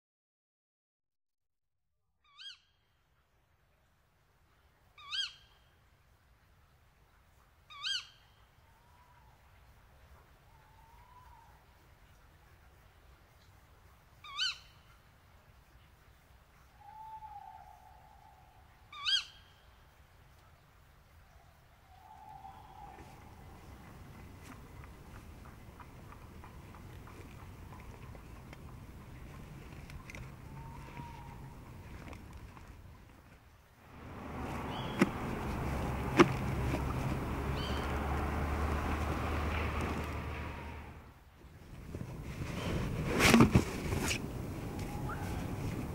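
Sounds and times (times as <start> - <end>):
owl shrieks: 14.2 - 14.6, 16.8 - 19.5, 30.5 - 31.5, 44.7 - 45.5
owl hoot: 16.8 - 19.4, 21.9 - 23.8, 30.4 - 31.6, 44.7 - 45.7
rushing noise with low hum: 33.8 - 45.9.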